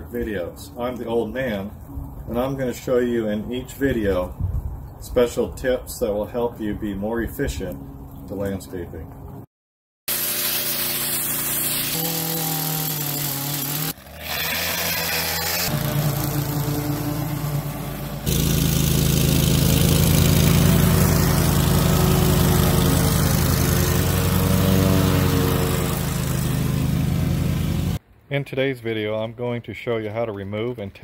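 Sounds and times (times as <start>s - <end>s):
pressure washer spray hissing: 10.1s - 13.9s, 15.6s - 28.0s
riding lawn mower engine: 10.1s - 28.0s.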